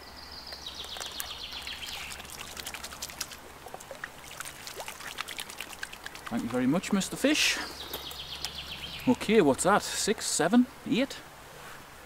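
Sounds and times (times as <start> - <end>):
bird singing: 0.0 - 2.8, 6.3 - 9.8
water dripping: 0.5 - 7.3, 7.9 - 9.1
water splashing and trickling: 0.6 - 9.9.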